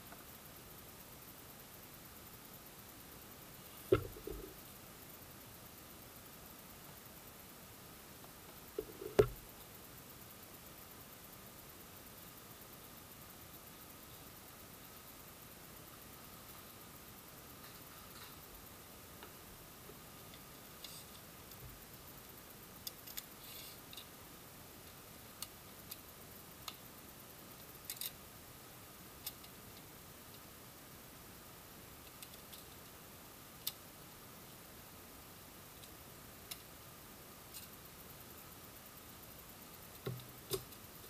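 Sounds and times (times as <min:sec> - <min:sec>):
steady faint hiss: 0:00.0 - 0:41.0.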